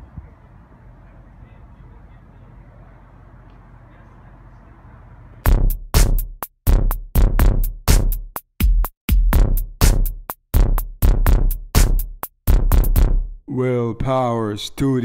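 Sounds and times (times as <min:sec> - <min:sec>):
low background noise: 0:00.0 - 0:05.4
drum machine hits: 0:05.5 - 0:13.3.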